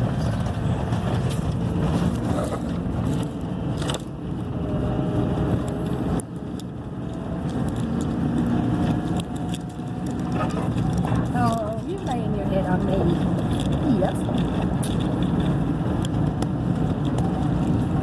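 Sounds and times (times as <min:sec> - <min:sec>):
truck engine and road rumble: 0:00.0 - 0:18.0
light clicks and rattles: 0:05.6 - 0:17.8.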